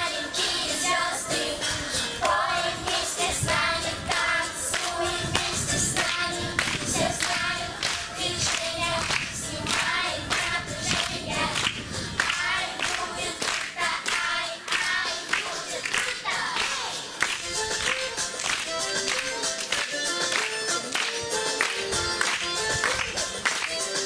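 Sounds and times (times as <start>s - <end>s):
children singing: 0.0s - 17.2s
hand clapping: 2.2s - 24.0s.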